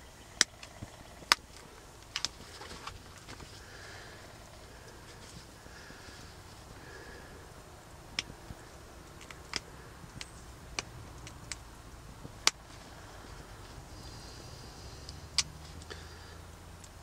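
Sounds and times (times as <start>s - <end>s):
stone flaking clicks: 0.4s - 3.6s, 8.1s - 12.8s.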